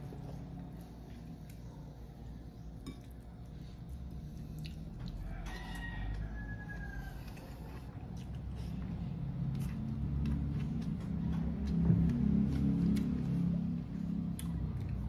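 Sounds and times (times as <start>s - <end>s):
rooster crowing: 5.1s - 7.8s.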